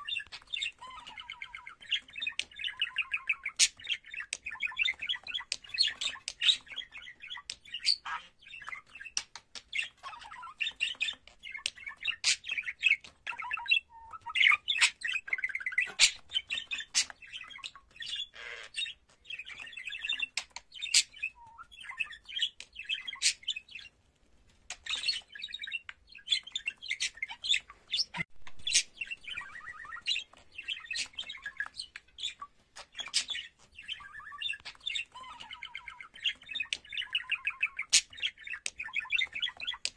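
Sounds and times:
budgerigar chattering chirps: 0.0 - 23.9.

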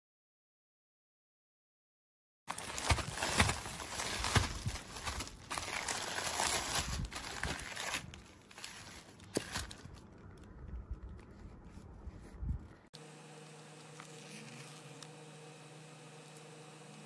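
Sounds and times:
plastic packaging crinkling: 2.5 - 11.8.

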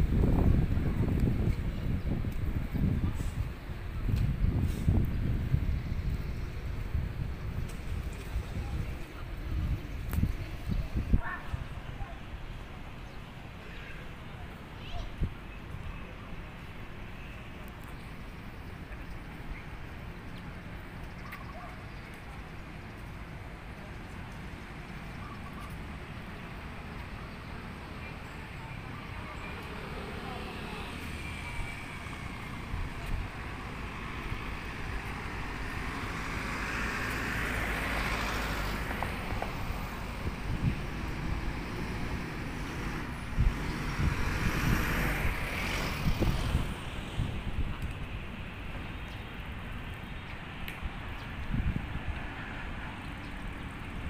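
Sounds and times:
low rumble of traffic: 0.0 - 54.0
vehicle passing: 25.8 - 47.8.

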